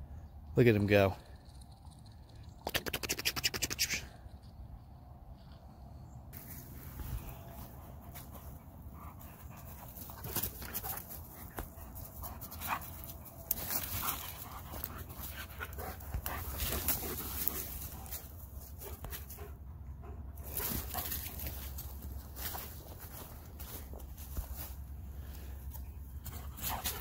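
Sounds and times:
footsteps crunching dry leaves: 6.4s - 8.3s, 20.5s - 25.0s
dog panting: 7.6s - 21.5s.

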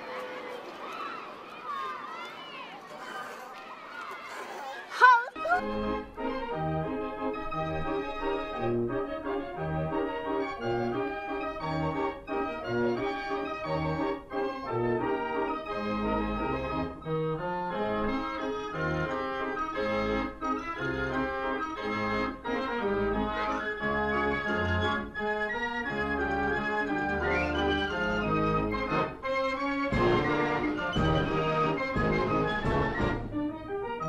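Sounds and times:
organ music: 5.6s - 34.0s.

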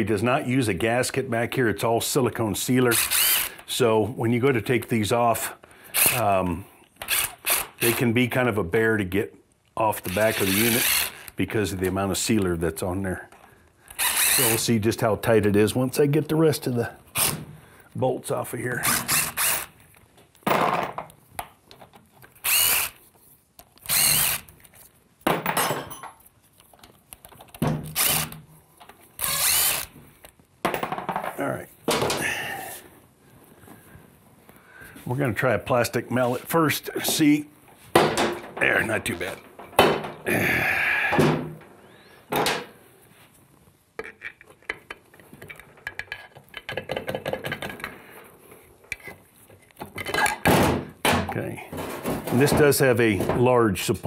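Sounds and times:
cordless impact driver bursts: 3.0s - 3.6s, 10.4s - 11.3s, 14.0s - 14.5s, 18.8s - 19.7s, 22.4s - 23.0s, 23.8s - 24.5s, 27.9s - 28.4s, 29.2s - 29.9s.

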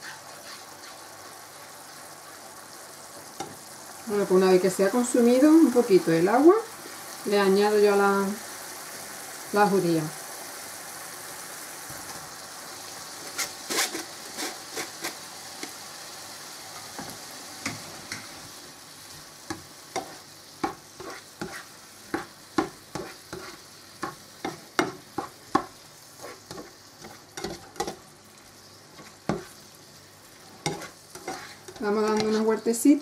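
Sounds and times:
pan sizzling: 0.0s - 33.0s
spatula knocking and scraping pan: 19.5s - 28.0s, 29.0s - 29.6s, 30.6s - 32.5s.

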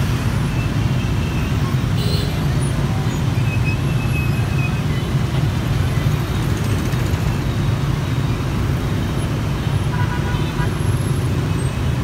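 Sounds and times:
dense motorbike and car traffic: 0.0s - 12.0s.

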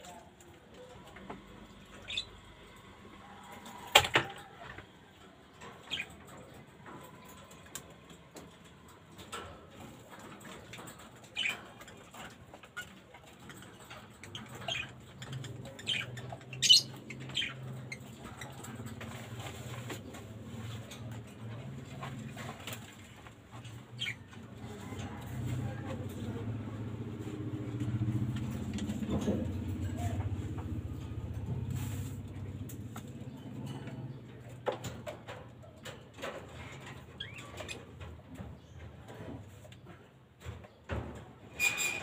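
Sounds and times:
birds chirping high: 1.8s - 2.8s, 10.2s - 24.8s.

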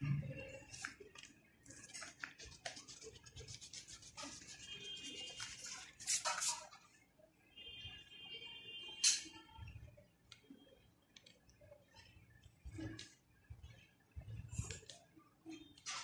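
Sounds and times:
pencil scratching on paper: 1.7s - 6.7s
eraser rubbing on paper: 1.9s - 6.7s.

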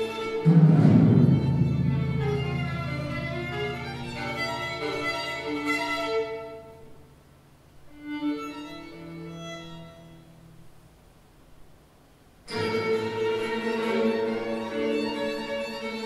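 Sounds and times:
solo violin: 0.0s - 0.5s, 1.2s - 7.0s, 7.8s - 10.5s, 12.5s - 16.0s
lower bowed strings: 0.0s - 7.0s, 12.5s - 16.0s.

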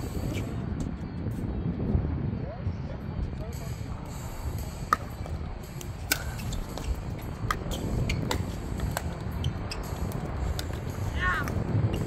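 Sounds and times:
low rumble: 1.5s - 12.0s
paddles hitting ball: 4.9s - 11.6s.

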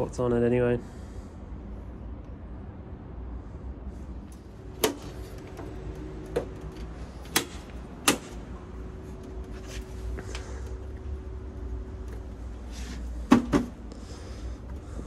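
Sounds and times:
faint steady hum: 0.0s - 15.0s
sharp knocks on metal panels: 4.8s - 8.4s, 13.3s - 13.8s.

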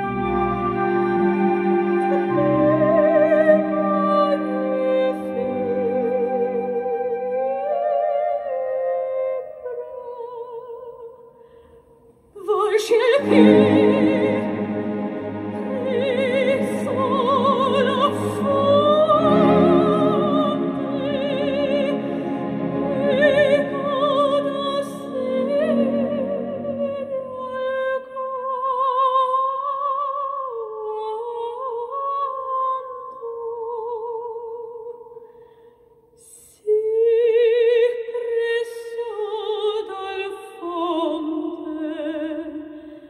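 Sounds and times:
low musical accompaniment: 0.0s - 9.3s, 13.1s - 27.4s
opera-like melody with vibrato: 0.0s - 35.2s, 36.2s - 43.0s.

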